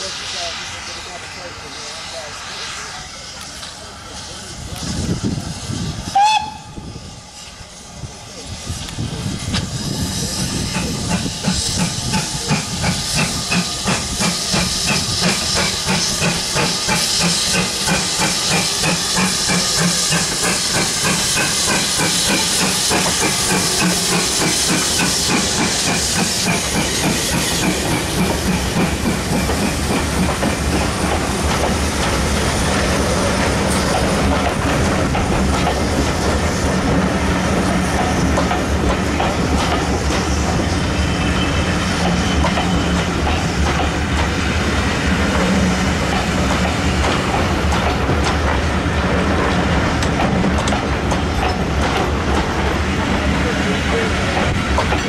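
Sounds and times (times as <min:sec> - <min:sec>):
hissing steam: 0:00.0 - 0:55.0
steam locomotive exhaust chuffs: 0:00.0 - 0:55.0
wheels clicking over rail joints: 0:45.3 - 0:53.2, 0:53.9 - 0:55.0.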